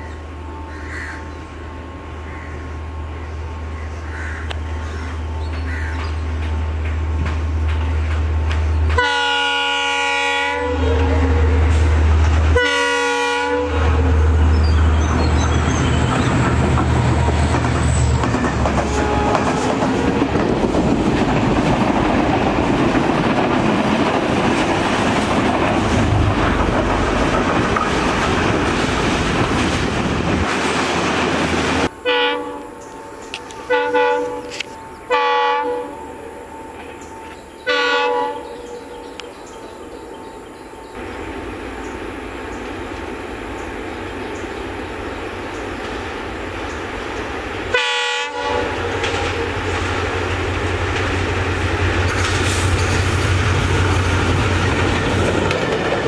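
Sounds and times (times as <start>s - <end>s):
locomotive engine drone: 0.0s - 56.0s
train wheels clattering on rails: 4.5s - 9.0s, 14.4s - 31.9s, 48.6s - 56.0s
locomotive horn blasts: 8.9s - 14.8s, 18.8s - 20.4s, 32.0s - 32.9s, 33.6s - 36.5s, 37.6s - 38.9s, 47.7s - 49.4s.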